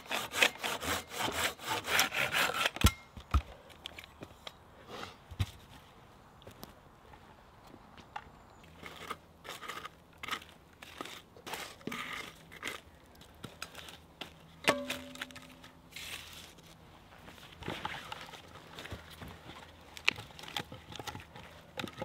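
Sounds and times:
crunching and crackling: 8.6 - 22.0.

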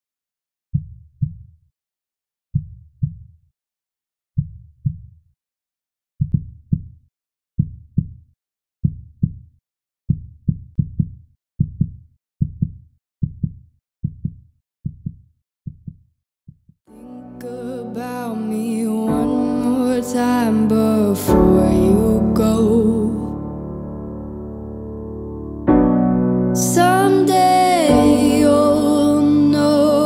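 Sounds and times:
heartbeat-like thumps: 6.2 - 6.9, 10.1 - 16.7
soundtrack song: 16.9 - 30.0.

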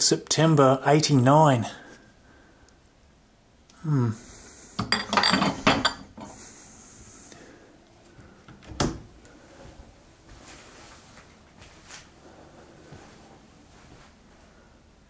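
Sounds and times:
man murmuring: 3.8 - 4.3
glass jars clinking: 4.8 - 6.3.

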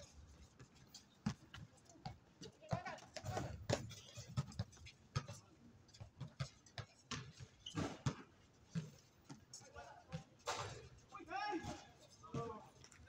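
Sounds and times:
basketball dribbling on concrete: 1.2 - 5.4, 6.0 - 9.4.

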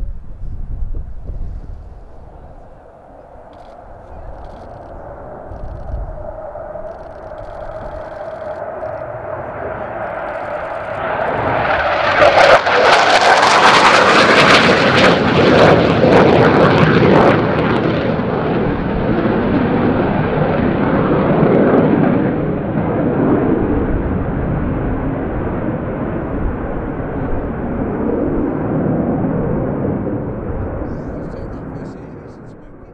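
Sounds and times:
jet passing low with roar: 0.0 - 32.9.

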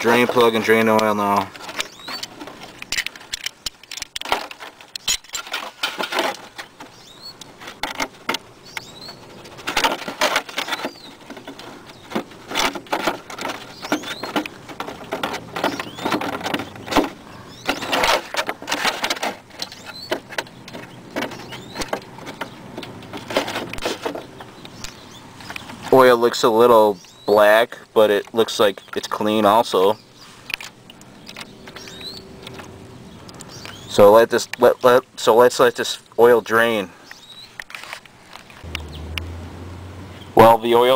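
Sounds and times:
bird-like chirps: 1.0 - 2.4, 6.7 - 7.5, 8.6 - 9.5, 10.5 - 12.2, 13.5 - 14.6, 15.6 - 18.4, 19.6 - 22.7, 24.0 - 25.9, 26.7 - 27.6, 28.6 - 35.0, 37.0 - 37.6, 38.6 - 39.2.

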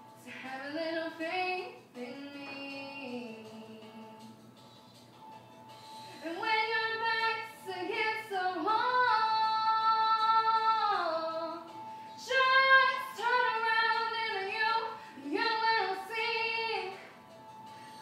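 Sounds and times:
woman singing slow melody: 0.2 - 4.4, 6.2 - 17.2.

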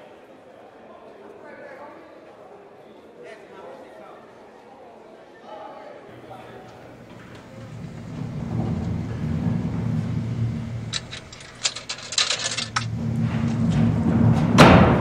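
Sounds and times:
sharp crackling clicks: 10.0 - 13.8.

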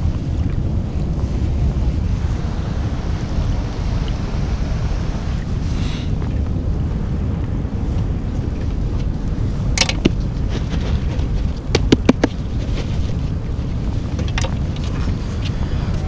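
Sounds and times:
wind buffeting microphone: 0.0 - 16.0
sharp clicks and knocks: 9.8 - 12.4.

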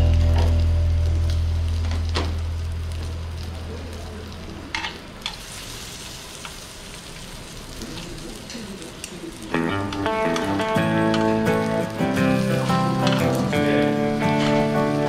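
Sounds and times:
low music note: 0.0 - 3.4
pork sizzling on a grill: 0.0 - 15.0.

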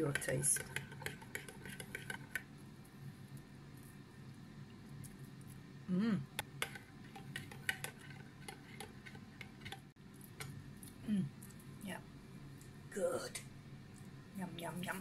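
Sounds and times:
person humming: 5.9 - 6.3.

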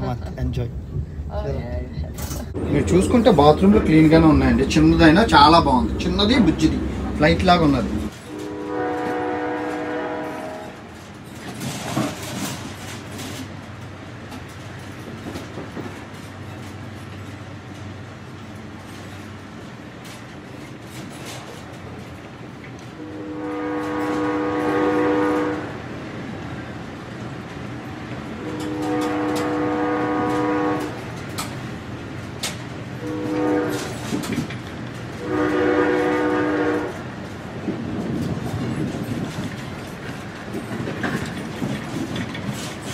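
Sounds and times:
train horn chord: 4.7 - 10.9, 23.0 - 25.8, 28.4 - 31.0, 33.0 - 34.1, 35.2 - 37.0
carriage rumble and clatter: 36.9 - 42.9.

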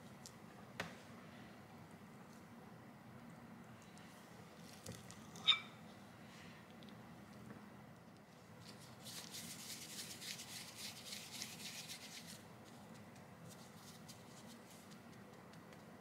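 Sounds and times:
hands rolling dough crackling: 8.0 - 16.0.

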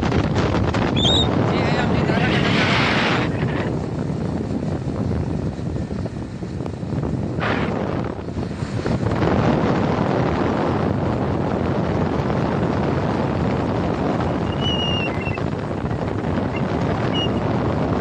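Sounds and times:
vehicle travelling along road: 0.0 - 18.0
wind buffeting microphone: 0.0 - 18.0
short high-pitched chirps: 14.5 - 15.4.

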